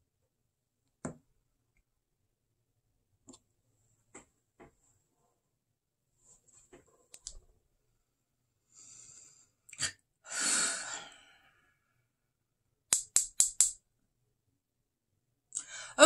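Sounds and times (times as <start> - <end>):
person sighing: 15.6 - 16.0.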